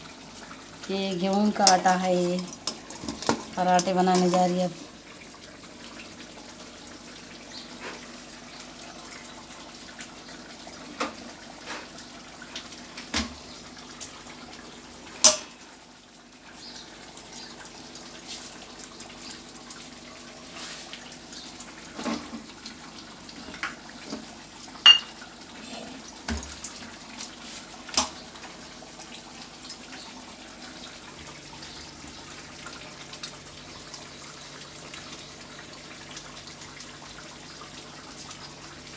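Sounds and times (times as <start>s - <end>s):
water sounds: 0.0s - 38.9s
steel kitchenware clinking: 15.2s - 15.8s, 24.8s - 25.2s.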